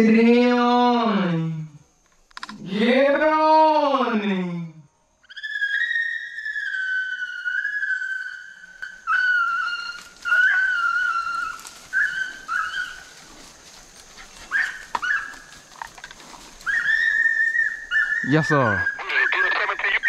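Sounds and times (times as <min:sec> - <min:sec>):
hounds baying: 0:05.4 - 0:20.0.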